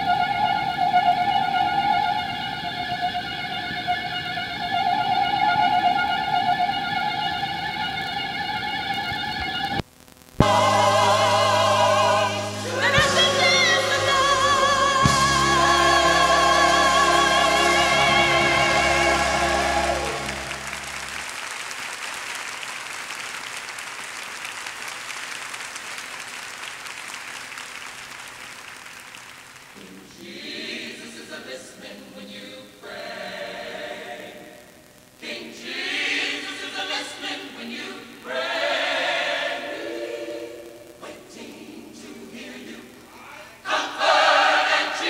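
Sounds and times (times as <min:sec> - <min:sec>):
choir singing long held notes: 0:00.0 - 0:09.1, 0:10.4 - 0:21.3, 0:29.8 - 0:45.0
person singing with vibrato: 0:10.4 - 0:20.7
backing music: 0:10.4 - 0:21.3
audience applauding: 0:17.1 - 0:30.2.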